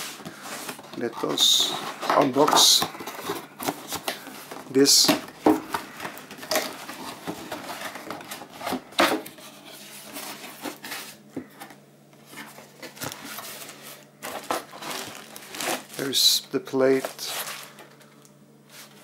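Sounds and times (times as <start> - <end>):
plastic wrapping crinkling: 12.4 - 18.0
cardboard box being opened: 12.9 - 16.1.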